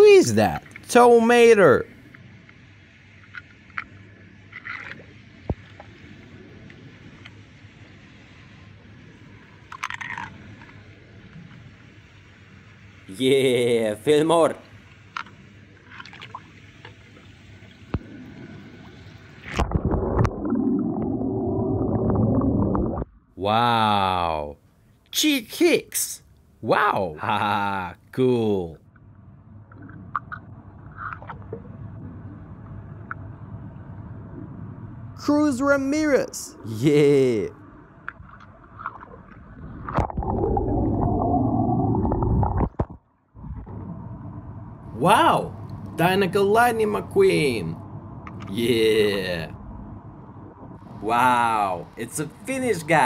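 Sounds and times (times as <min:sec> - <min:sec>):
water sloshing and gurgling: 0:01.9 - 0:07.9, 0:08.9 - 0:12.8, 0:14.6 - 0:23.3, 0:28.8 - 0:35.2, 0:37.6 - 0:46.0, 0:47.8 - 0:51.1.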